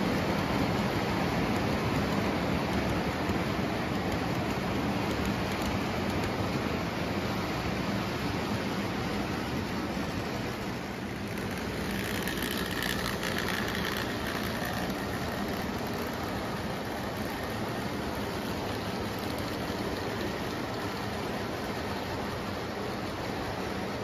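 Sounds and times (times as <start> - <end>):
locomotive motor hum: 0.0 - 24.0
model train wheels rumbling: 0.0 - 24.0.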